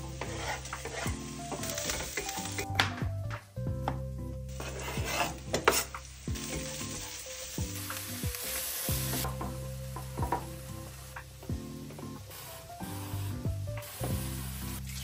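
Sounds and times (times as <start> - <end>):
wooden spoon stirring: 0.0 - 2.4, 4.5 - 7.1
vegetables sizzling in frying pan: 0.0 - 2.7, 4.5 - 15.0
soft background music: 0.0 - 15.0.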